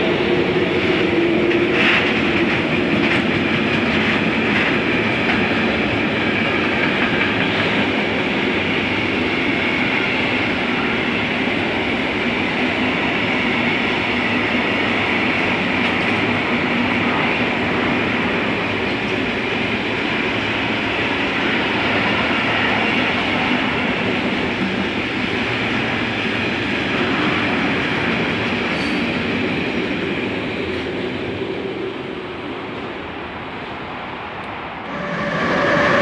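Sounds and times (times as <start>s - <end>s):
train wheels rushing on rail: 0.0s - 36.0s
faint clickety-clack: 1.0s - 8.1s.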